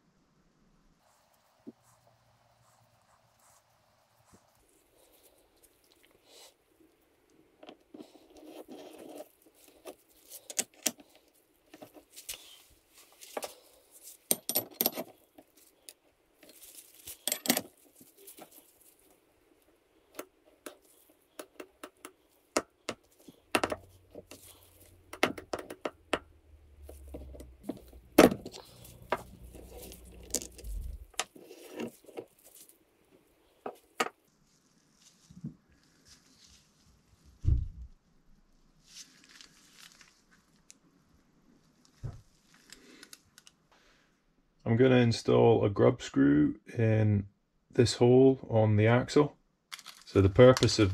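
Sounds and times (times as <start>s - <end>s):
steel tools clinking: 15.9s - 17.8s.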